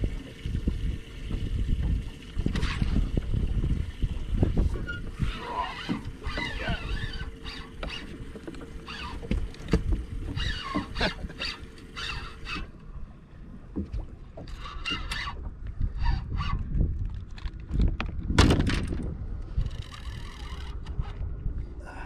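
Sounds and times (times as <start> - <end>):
wind on microphone: 0.0 - 8.3, 13.5 - 22.0
water lapping against boat hull: 0.0 - 21.8
boat knocks and squeaks: 4.3 - 12.8, 13.6 - 21.3.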